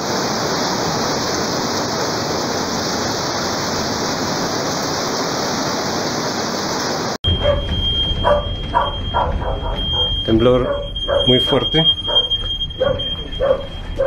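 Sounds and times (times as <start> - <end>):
heavy rain pouring: 0.0 - 14.0
steady high tone: 7.2 - 14.0.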